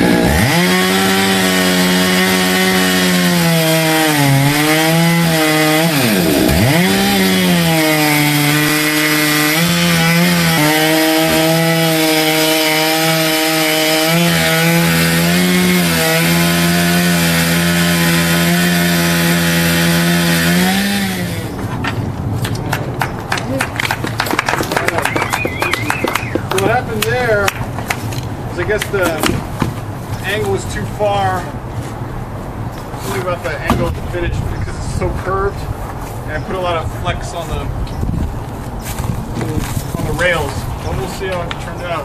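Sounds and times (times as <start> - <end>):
chainsaw ripping through log: 0.0 - 21.5.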